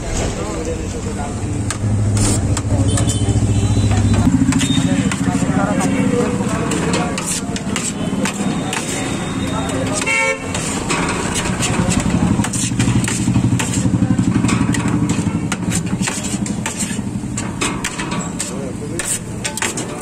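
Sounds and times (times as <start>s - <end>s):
motorcycle engine running: 1.3s - 8.9s, 11.4s - 17.8s
knife scraping on steel tray: 2.1s - 20.0s.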